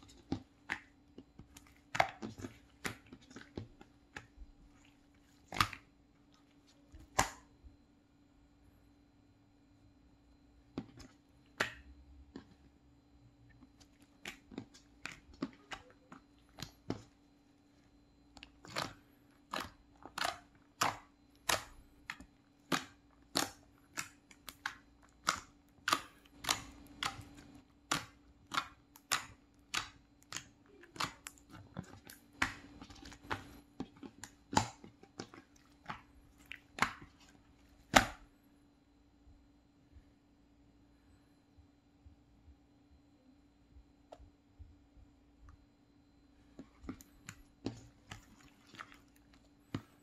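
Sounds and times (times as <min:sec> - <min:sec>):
slime wet pops and clicks: 0:18.7 - 0:31.4.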